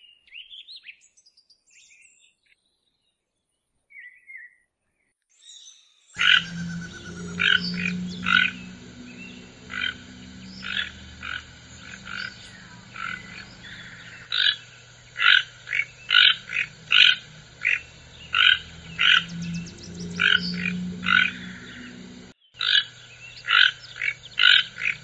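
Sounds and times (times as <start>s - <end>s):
toucan croaking calls: 6.2s - 22.3s.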